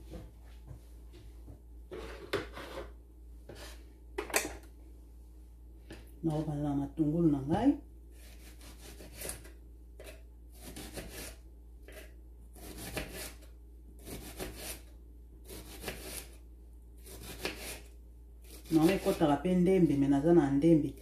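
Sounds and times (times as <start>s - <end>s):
knife slicing onion on board: 8.2s - 16.4s, 17.0s - 19.3s.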